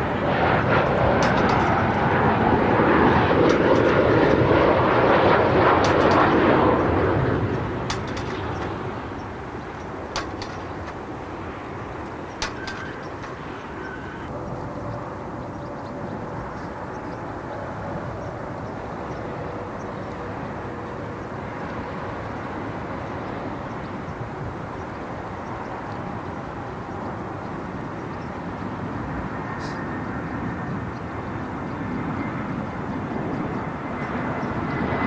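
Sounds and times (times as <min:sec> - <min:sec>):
jet airliner engines running: 0:00.0 - 0:35.0
sharp clicks: 0:01.2 - 0:02.1, 0:03.4 - 0:04.8, 0:05.7 - 0:14.3.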